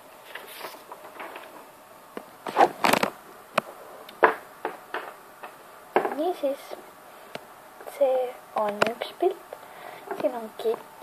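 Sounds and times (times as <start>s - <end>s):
handling rustles and knocks: 0.2s - 6.4s, 8.6s - 9.1s, 10.0s - 10.9s.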